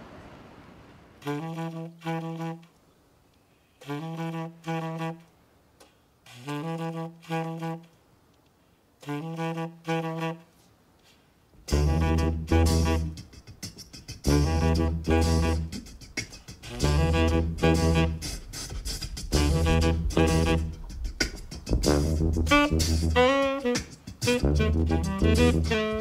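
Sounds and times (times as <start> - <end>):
tenor saxophone riff: 1.2 - 2.7, 3.8 - 5.4, 6.2 - 8.0, 9.0 - 10.5, 11.6 - 21.0, 21.7 - 26.0.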